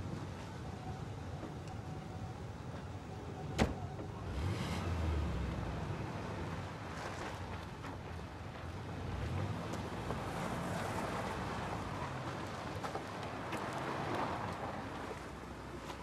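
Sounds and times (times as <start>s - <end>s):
tyres crunching over dirt: 5.6s - 16.0s.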